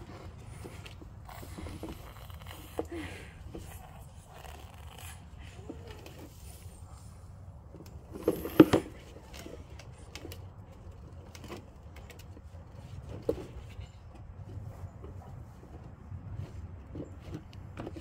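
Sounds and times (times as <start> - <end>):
hollow plastic knocks and clatter: 13.0 - 18.0.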